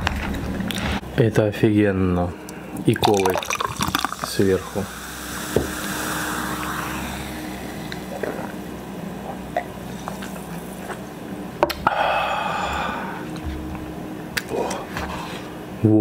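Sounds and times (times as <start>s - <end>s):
cola fizzing in a glass: 2.8s - 8.7s
loud breathy exhale: 11.8s - 13.3s.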